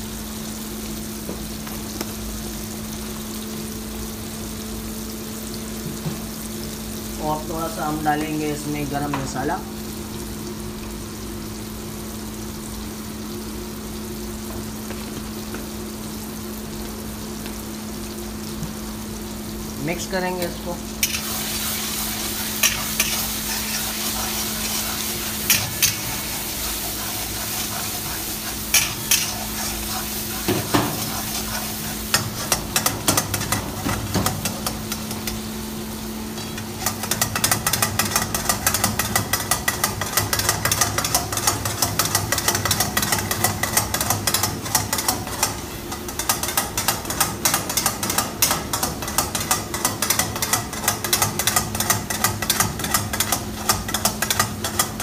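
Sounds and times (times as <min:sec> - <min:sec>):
gravy sizzling: 0:00.0 - 0:55.0
spatula scraping a wok: 0:21.0 - 0:35.4.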